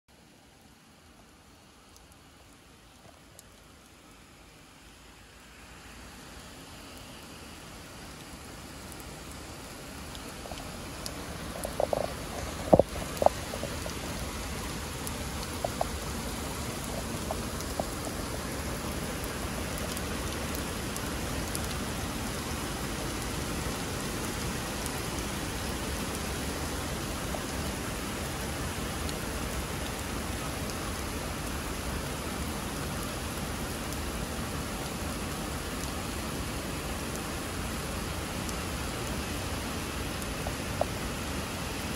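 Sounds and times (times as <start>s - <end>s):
heavy rain pouring: 0.1s - 41.9s
faint ticks: 1.8s - 4.0s, 10.1s - 21.8s.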